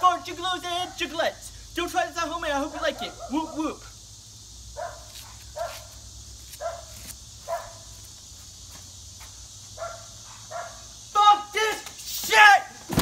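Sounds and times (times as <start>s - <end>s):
steady high hiss: 0.0s - 13.0s
dog barking: 3.0s - 3.8s, 4.8s - 5.9s, 6.6s - 6.9s, 7.5s - 7.9s, 9.8s - 10.9s.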